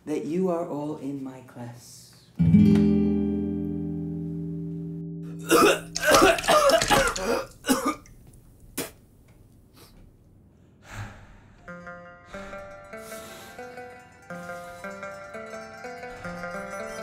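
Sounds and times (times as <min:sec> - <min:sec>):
man retching and gagging: 0:05.3 - 0:08.2.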